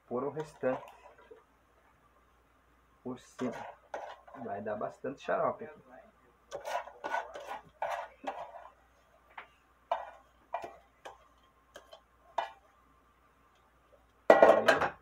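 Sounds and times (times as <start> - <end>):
scraping and rustling in metal pot: 0.1 - 1.5, 3.2 - 5.0, 6.5 - 12.8.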